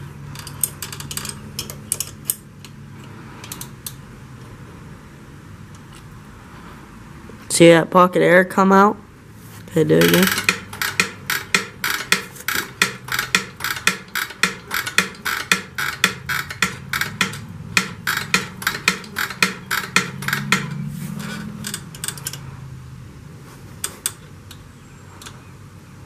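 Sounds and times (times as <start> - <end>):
rapid even clicking: 9.9 - 22.5.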